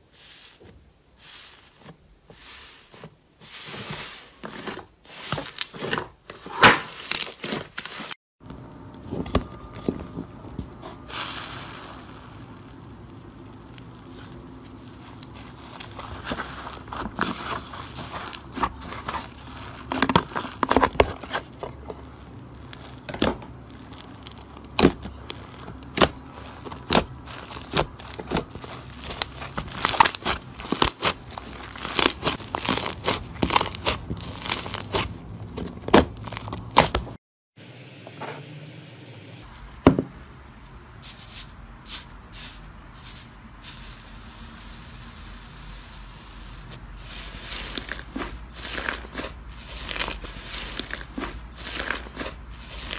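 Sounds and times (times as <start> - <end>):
slime crackling and popping: 11.4 - 37.1, 47.3 - 52.9.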